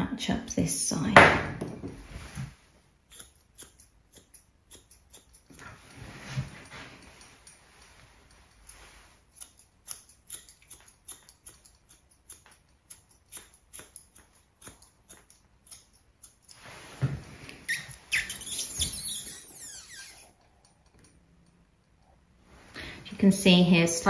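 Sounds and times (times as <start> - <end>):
scissors snipping hair: 3.0 - 6.0, 7.0 - 16.6.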